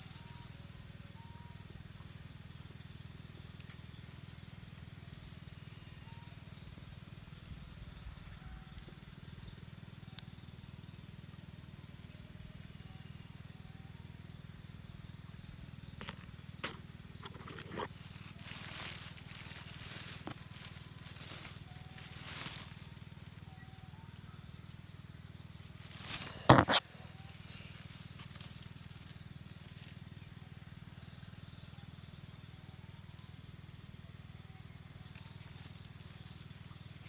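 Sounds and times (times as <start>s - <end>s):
dry leaf litter rustling: 0.0s - 0.7s, 16.0s - 24.3s, 25.4s - 30.4s, 35.0s - 37.0s
steady low hum: 0.0s - 37.0s.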